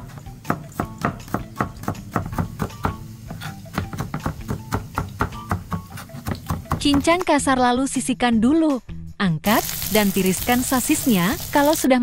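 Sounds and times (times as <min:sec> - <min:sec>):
background music: 0:00.0 - 0:12.0
cleaver chopping on cutting board: 0:00.4 - 0:07.1.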